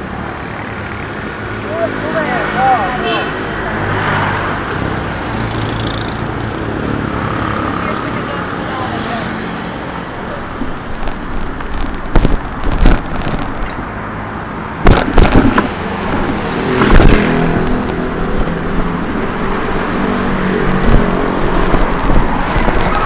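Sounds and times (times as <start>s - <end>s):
street traffic: 0.0s - 23.0s
sharp knocks and rattles: 10.5s - 13.8s, 14.8s - 18.8s.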